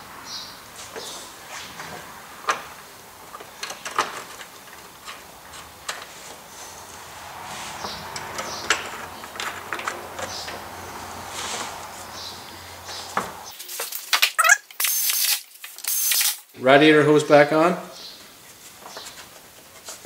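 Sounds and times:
clicks and knocks of hands working: 3.3s - 6.4s, 8.1s - 10.7s.

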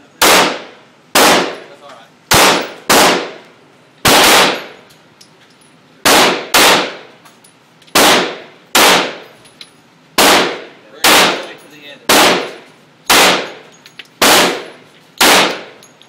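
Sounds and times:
pistol shots echoing indoors: 0.2s - 1.6s, 2.3s - 3.4s, 4.0s - 4.8s, 6.1s - 7.1s, 8.0s - 9.2s, 10.2s - 11.5s, 12.1s - 13.6s, 14.2s - 15.8s.

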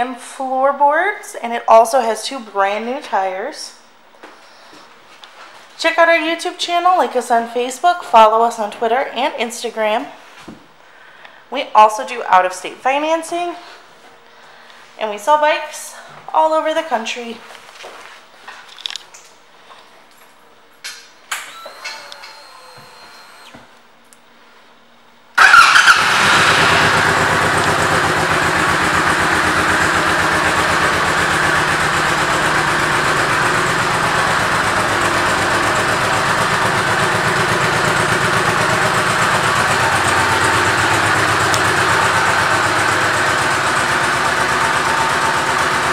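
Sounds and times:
motorcycle engine starting and idling: 25.4s - 45.9s.

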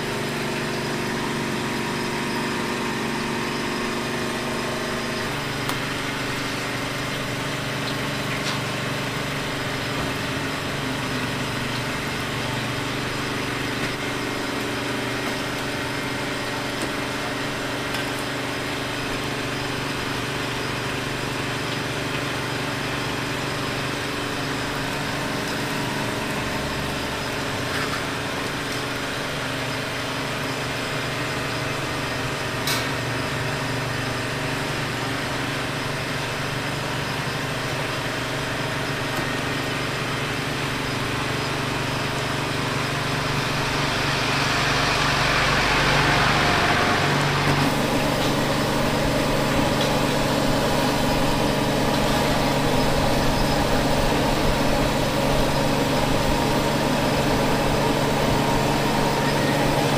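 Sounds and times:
noisy market background: 0.0s - 59.9s
small engine humming: 33.5s - 59.9s.

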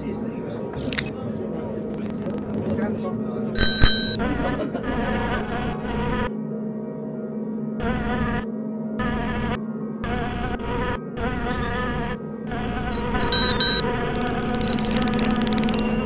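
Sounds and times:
fast run of clicks: 2.0s - 2.8s, 13.4s - 16.0s
short high beeps: 3.6s - 4.2s, 13.2s - 13.9s
bees buzzing: 3.6s - 6.3s, 7.8s - 16.0s.

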